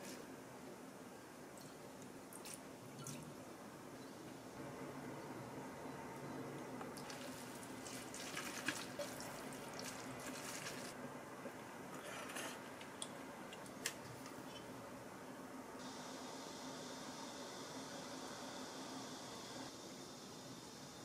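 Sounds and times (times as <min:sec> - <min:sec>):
chopsticks tossing wet noodles: 0:07.1 - 0:11.0.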